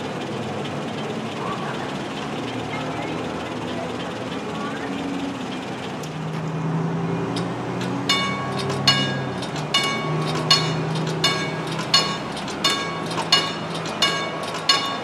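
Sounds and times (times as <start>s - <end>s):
crossing bell ringing: 7.3s - 15.0s.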